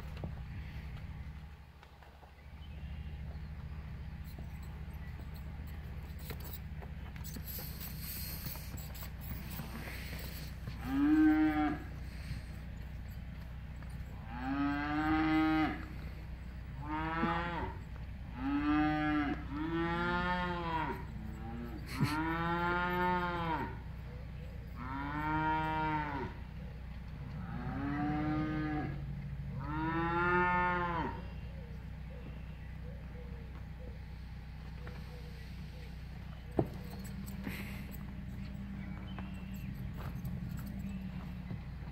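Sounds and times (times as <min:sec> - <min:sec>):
cattle mooing: 0:09.3 - 0:13.1, 0:13.8 - 0:23.9, 0:24.7 - 0:26.4, 0:27.3 - 0:31.4.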